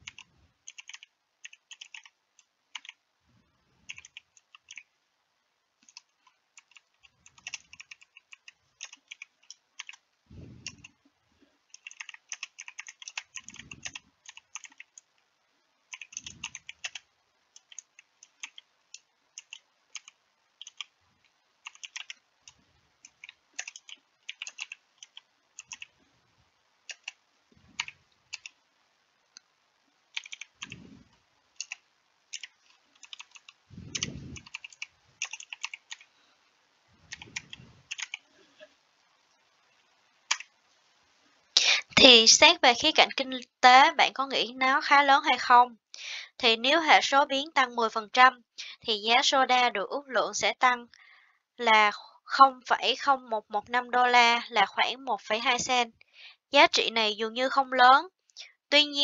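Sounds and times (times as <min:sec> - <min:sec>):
computer keyboard typing: 0:00.0 - 0:03.0, 0:03.9 - 0:04.9, 0:05.8 - 0:10.0, 0:11.7 - 0:15.1, 0:15.9 - 0:21.0, 0:21.6 - 0:26.0, 0:26.8 - 0:27.2, 0:27.8 - 0:28.6, 0:30.1 - 0:30.9, 0:31.6 - 0:36.1, 0:37.1 - 0:38.3, 0:40.3 - 0:40.5
soft low thumps: 0:10.3 - 0:10.9, 0:33.7 - 0:34.5.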